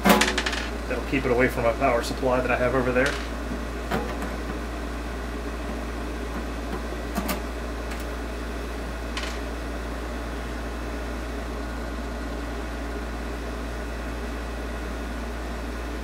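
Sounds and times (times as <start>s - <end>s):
background hum and hiss: 0.0s - 16.0s.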